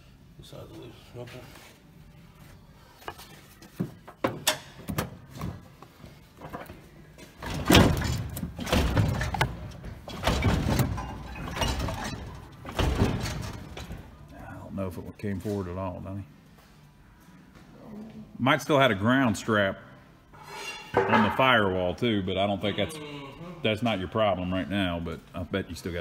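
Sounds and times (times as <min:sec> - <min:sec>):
metal knocks and clanks: 0:07.2 - 0:14.2.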